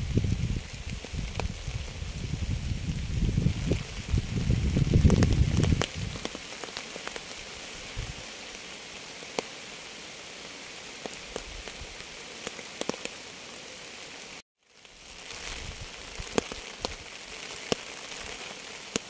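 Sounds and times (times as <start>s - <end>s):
steady rain hiss: 0.0s - 19.0s
raindrops ticking: 3.5s - 7.5s, 11.0s - 13.2s, 14.7s - 19.0s.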